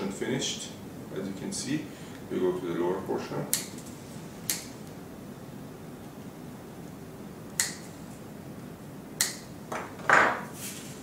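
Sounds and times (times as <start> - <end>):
wire cutter snipping: 7.6 - 7.8.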